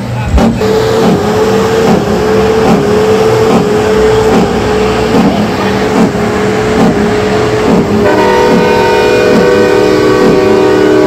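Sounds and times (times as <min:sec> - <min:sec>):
truck droning: 0:00.0 - 0:11.0.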